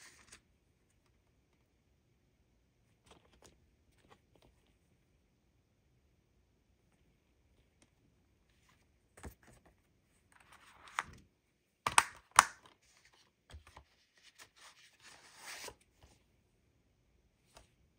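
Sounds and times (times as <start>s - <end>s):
plastic case snapping shut: 11.9s - 12.6s.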